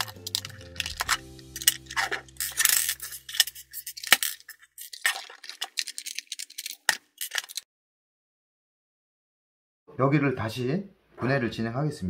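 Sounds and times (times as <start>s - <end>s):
plastic parts clicking and knocking: 0.0s - 7.6s
plastic scraping: 0.0s - 7.6s.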